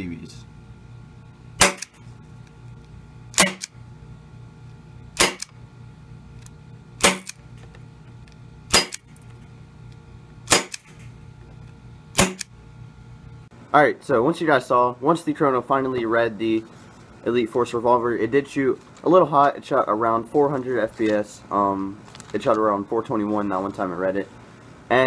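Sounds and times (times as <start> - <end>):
airsoft revolver shots: 1.6 - 2.0, 3.4 - 3.8, 5.2 - 5.5, 7.0 - 7.4, 8.7 - 9.0, 10.5 - 11.0, 12.2 - 12.5.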